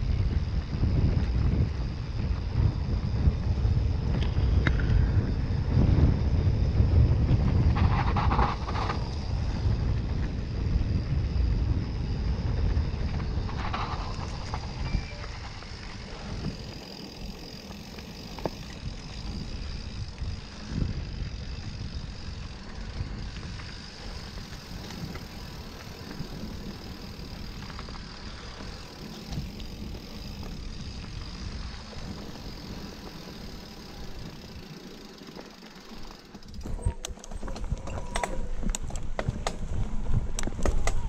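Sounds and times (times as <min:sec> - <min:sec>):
tyres rumbling on dirt: 0:11.4 - 0:41.0
bike knocks and rattles: 0:13.2 - 0:41.0.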